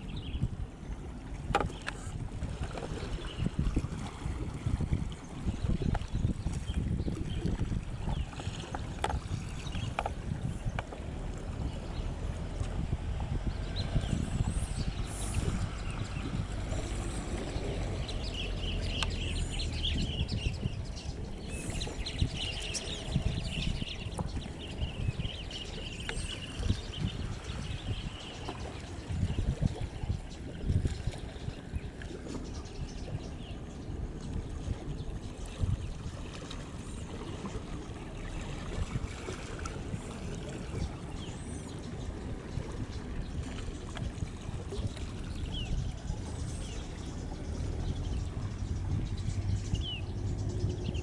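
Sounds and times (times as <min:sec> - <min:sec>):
water churning along hull: 0:00.0 - 0:51.0
steady low rumble: 0:09.2 - 0:28.2
birds chirping rapidly: 0:13.4 - 0:30.4, 0:44.8 - 0:51.0.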